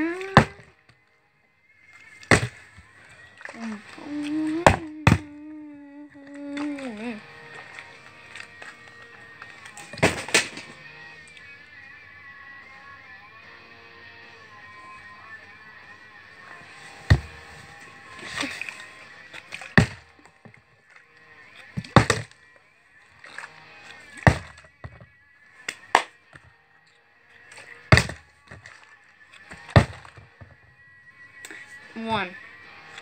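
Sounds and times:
plastic bottle thudding on cardboard: 0.2 - 0.6, 2.3 - 2.6, 4.6 - 5.3, 9.8 - 10.7, 17.1 - 17.5, 19.7 - 20.6, 21.8 - 22.3, 24.2 - 25.1, 27.8 - 28.7, 29.5 - 30.6.

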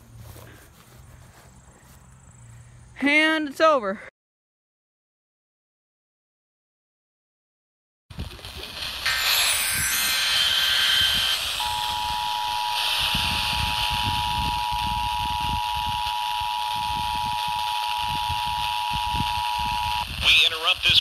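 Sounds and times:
steady hiss: 8.1 - 13.8
two-tone alert signal: 8.9 - 17.4.

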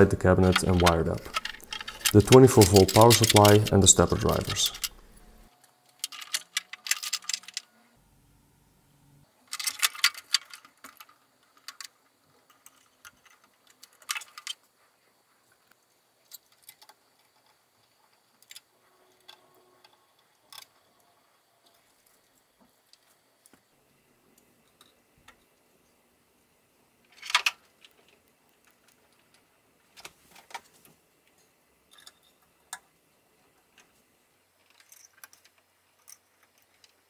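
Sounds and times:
rustling wire and cable: 0.0 - 7.7, 27.1 - 31.4
wires being handled: 0.0 - 7.7.

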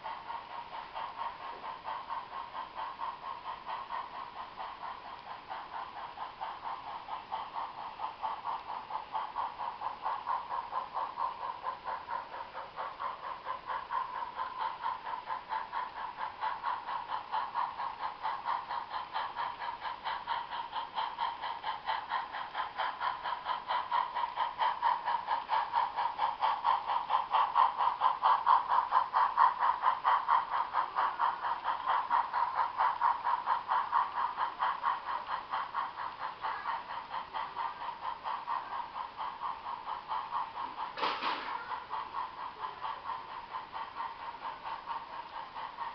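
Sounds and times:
model train motor whine: 26.8 - 45.9.

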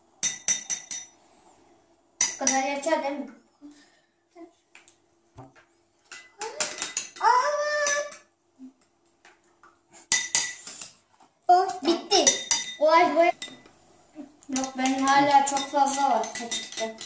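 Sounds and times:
spoons clinking on glass bowls: 0.2 - 1.2, 2.2 - 2.7, 6.1 - 8.3, 10.1 - 10.9, 12.2 - 13.7, 14.5 - 17.0
children's voices: 14.2 - 17.0.

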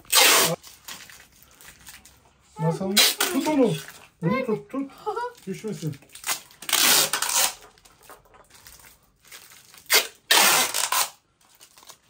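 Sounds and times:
adhesive tape ripping off roll: 0.0 - 1.2, 2.8 - 3.8, 6.0 - 7.8, 9.4 - 12.0.

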